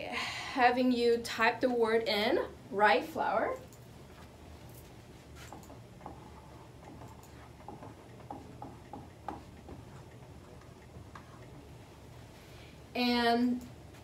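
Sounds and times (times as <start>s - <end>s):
low steady hum: 0.0s - 14.0s
keyboard typing: 5.4s - 11.6s.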